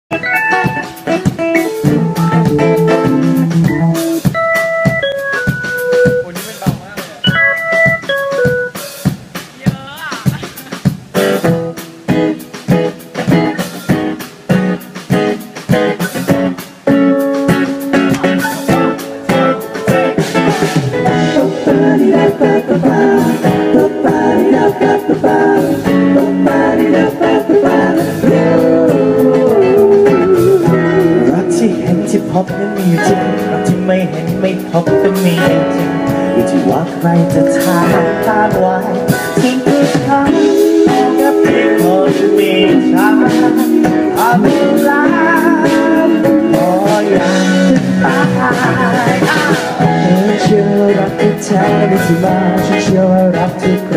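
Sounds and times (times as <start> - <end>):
keyboard chords: 0.1 - 10.6, 11.2 - 53.9
acoustic guitar: 0.1 - 53.9
bass guitar: 0.1 - 53.9
drum kit hits: 0.1 - 53.9
person singing: 21.0 - 53.9.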